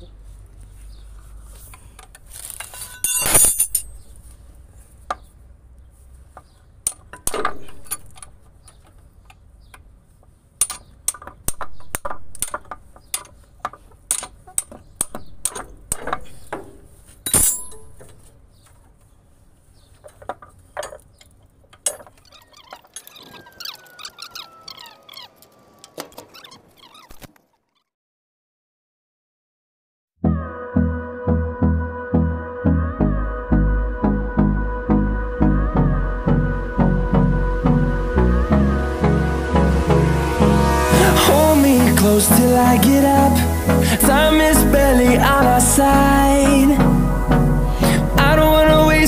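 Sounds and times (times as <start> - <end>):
steel hand tools clinking: 2.4 - 4.1, 6.9 - 8.4, 17.2 - 18.2.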